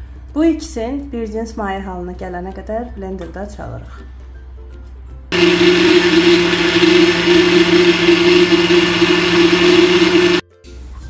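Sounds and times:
blender motor running: 5.3 - 10.4.

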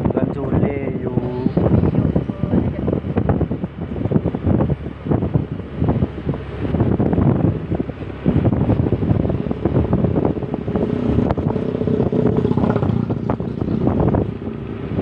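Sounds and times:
road noise: 0.0 - 15.0
wind buffeting microphone: 0.0 - 15.0
scooter engine: 4.4 - 15.0.

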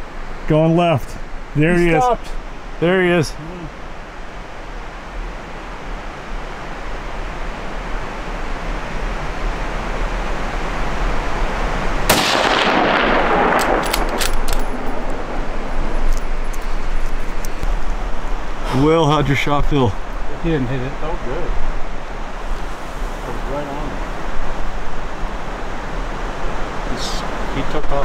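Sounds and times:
steady background hiss: 0.0 - 28.0
rifle shot echoing: 12.1 - 16.2.

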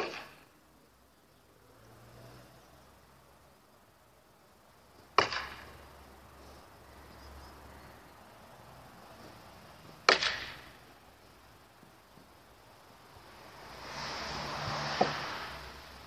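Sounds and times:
sword striking wooden post: 5.2 - 5.6, 10.0 - 10.7.

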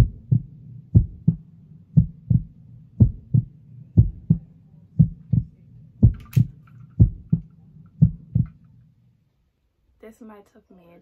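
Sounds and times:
heartbeat thumps: 0.0 - 8.6
steady low hum: 0.0 - 9.5.

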